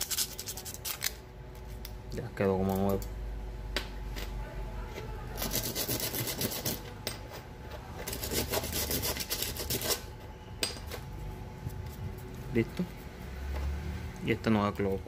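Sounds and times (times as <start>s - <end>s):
metal part being sanded: 5.4s - 6.8s, 8.0s - 10.1s.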